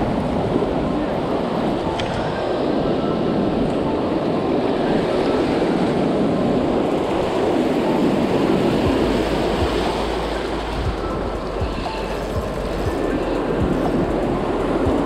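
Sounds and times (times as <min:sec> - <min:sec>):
shallow surf washing: 0:00.0 - 0:15.0.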